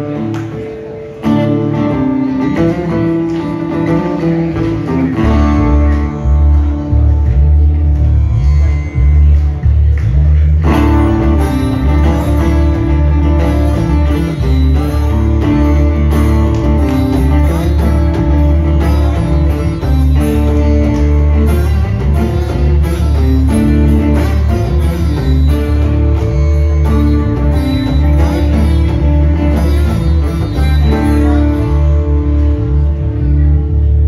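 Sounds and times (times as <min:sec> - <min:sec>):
electric bass line: 0:00.0 - 0:34.0
strummed acoustic guitars: 0:00.0 - 0:34.0.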